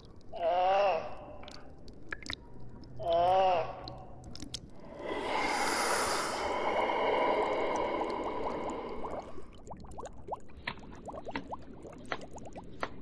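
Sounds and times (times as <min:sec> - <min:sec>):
loud breathy hiss: 0:04.8 - 0:09.5.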